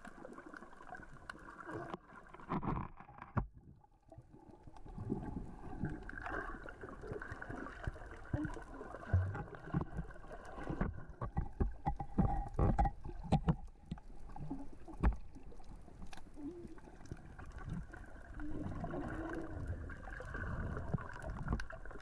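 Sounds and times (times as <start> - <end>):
underwater wash: 0.0 - 22.0
rocks knocking underwater: 7.8 - 16.1.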